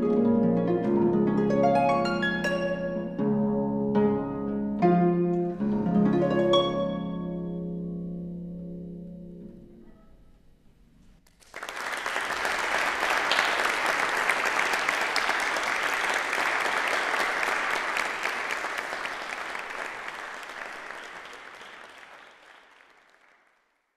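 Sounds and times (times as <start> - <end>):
audience applauding: 11.2 - 23.9.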